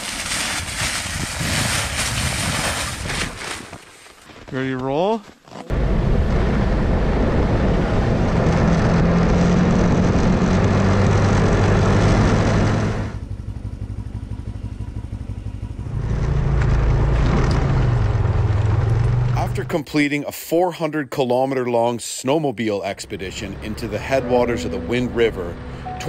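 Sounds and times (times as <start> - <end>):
snowmobile engine running: 14.7 - 19.7.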